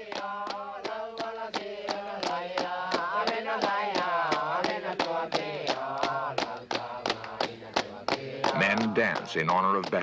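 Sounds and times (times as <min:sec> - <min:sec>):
group chanting in unison: 0:00.0 - 0:09.3
sharp percussive beat: 0:00.0 - 0:10.0.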